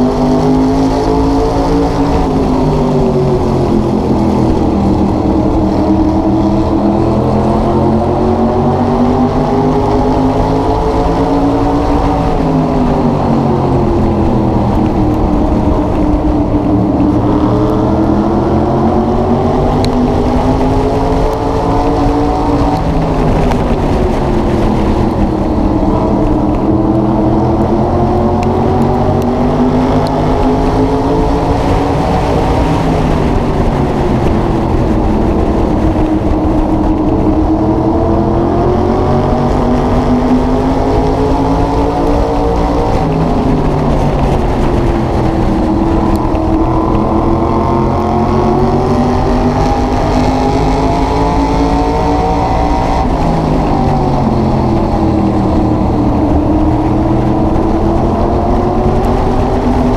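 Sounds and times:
race car engine: 0:00.0 - 0:59.9.

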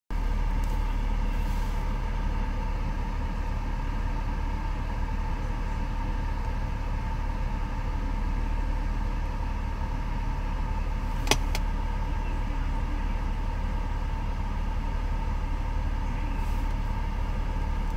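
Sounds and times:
car cabin low hum: 0:00.2 - 0:17.9
radio button clicks: 0:11.2 - 0:11.6.

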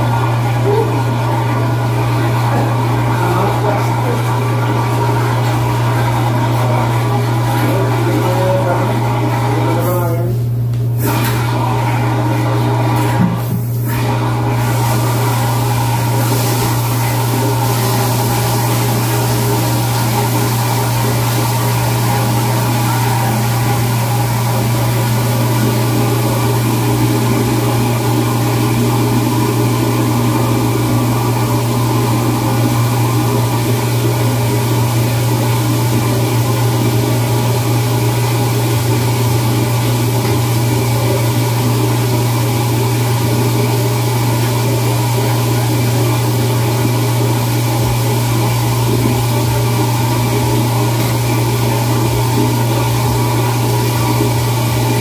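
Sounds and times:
loud machinery drone: 0:00.0 - 0:55.0.

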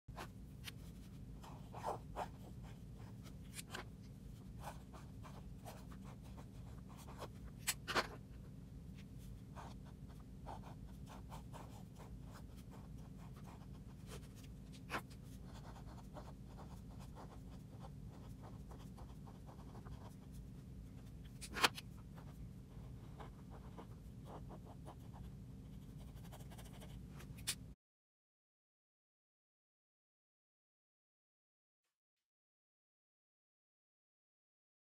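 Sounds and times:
steady low hum: 0:00.1 - 0:27.8.

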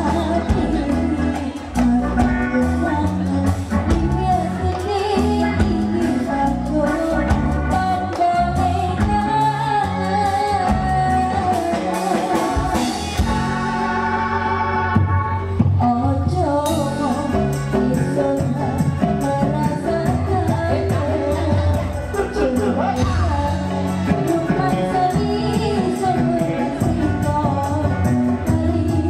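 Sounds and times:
woman singing into microphone: 0:00.0 - 0:13.4, 0:14.8 - 0:29.0
live band playing: 0:00.0 - 0:29.0.

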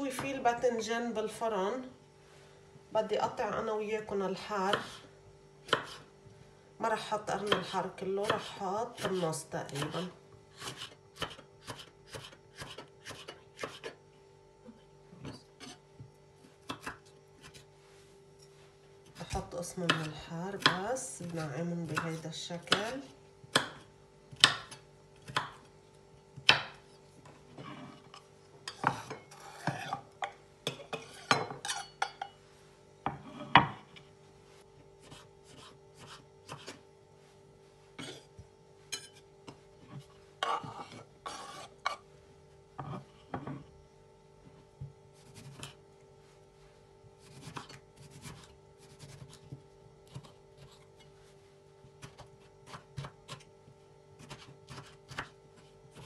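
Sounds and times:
faint steady hum: 0:00.0 - 0:56.0
knife chopping on wooden board: 0:05.7 - 0:06.0, 0:07.4 - 0:09.2, 0:10.6 - 0:13.9, 0:16.6 - 0:17.6, 0:19.2 - 0:20.9, 0:23.5 - 0:25.7, 0:26.4 - 0:26.8, 0:35.0 - 0:36.8, 0:51.9 - 0:53.5, 0:54.2 - 0:56.0.

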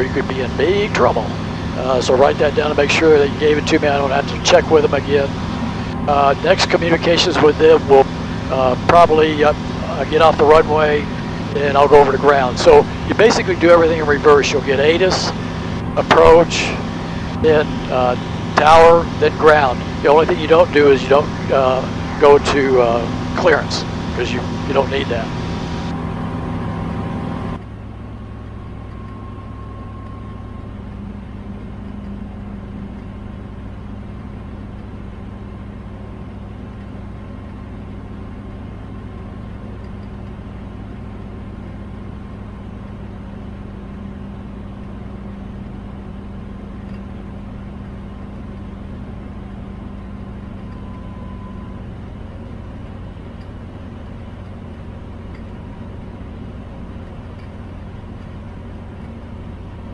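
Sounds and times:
light aircraft engine droning: 0:00.0 - 0:59.9.

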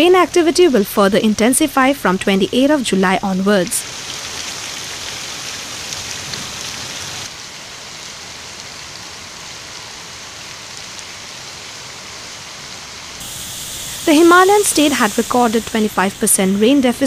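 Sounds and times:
heavy rain on standing water: 0:03.7 - 0:17.0.

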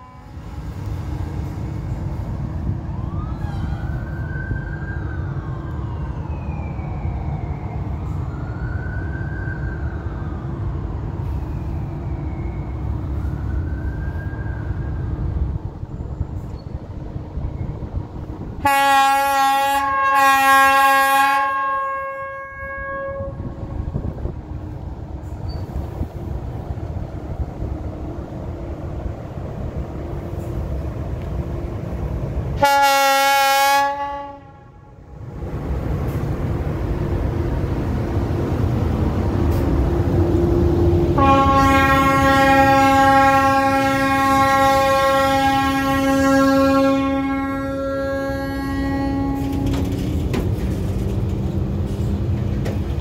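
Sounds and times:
locomotive horn blast: 0:00.0 - 0:00.4, 0:18.6 - 0:23.5, 0:32.6 - 0:34.9, 0:41.1 - 0:50.0
electric locomotive rumble and hum: 0:00.0 - 0:53.0.

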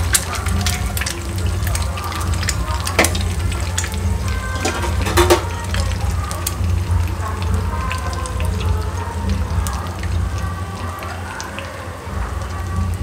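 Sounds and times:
eggs sizzling in a frying pan: 0:00.0 - 0:13.0
metal spoon scraping a pan: 0:04.4 - 0:05.6.

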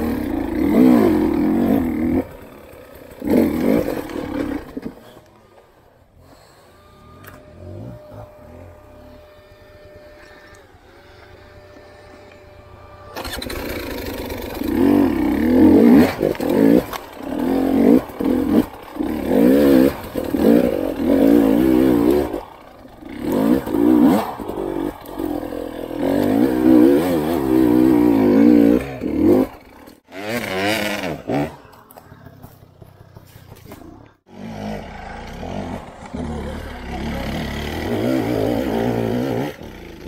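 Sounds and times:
motorcycle engine revving: 0:00.0 - 0:05.3, 0:06.2 - 0:40.0.

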